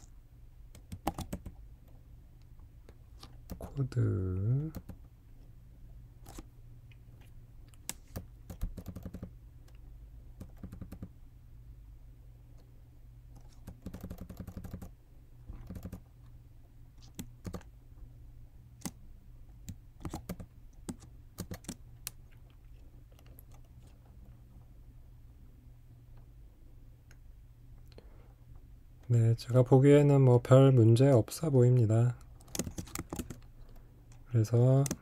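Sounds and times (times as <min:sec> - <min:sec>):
low steady hum: 0:00.0 - 0:35.0
keyboard keystrokes: 0:00.8 - 0:01.6, 0:07.8 - 0:09.3, 0:10.4 - 0:11.1, 0:13.4 - 0:14.9, 0:15.6 - 0:16.0, 0:17.0 - 0:17.7, 0:19.7 - 0:22.2, 0:32.4 - 0:33.4.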